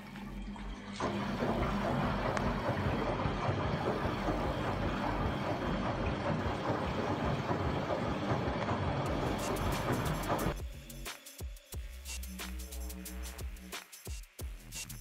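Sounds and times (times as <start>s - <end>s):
soapy water sloshing: 0.0s - 10.6s
washing machine motor running: 0.0s - 11.0s
washing machine drum turning: 0.2s - 10.6s.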